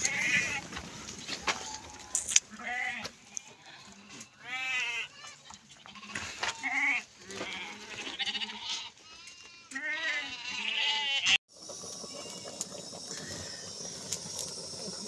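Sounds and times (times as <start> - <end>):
goats bleating: 0.0 - 0.8, 1.5 - 11.4.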